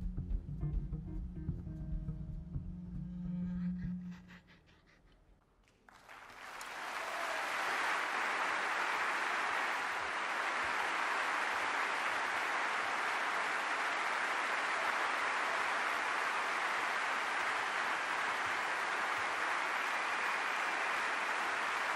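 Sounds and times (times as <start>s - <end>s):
audience applause: 5.7s - 21.9s.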